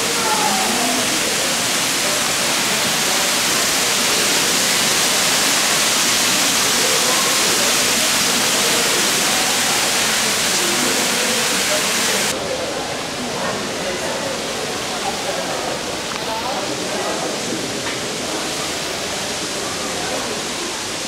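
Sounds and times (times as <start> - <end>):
fountain water splashing: 0.0 - 21.0.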